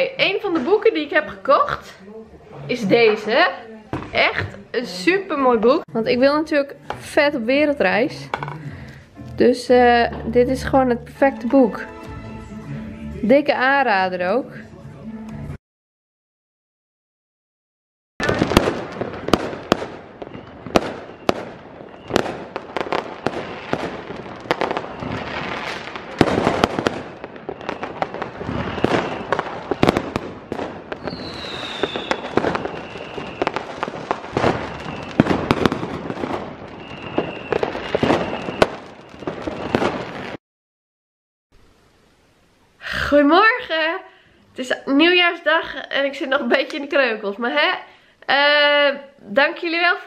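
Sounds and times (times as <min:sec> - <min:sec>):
falling firework whistle: 0:18.2 - 0:40.4
fireworks bangs and crackles: 0:18.2 - 0:40.4.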